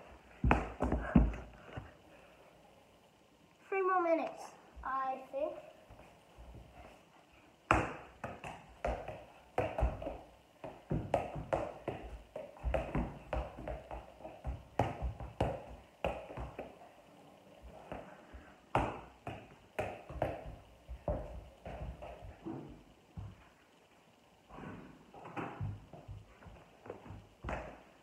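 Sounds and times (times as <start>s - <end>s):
ball kicked with bare feet: 0.4s - 1.6s, 7.7s - 16.8s, 18.7s - 23.4s, 25.2s - 27.9s.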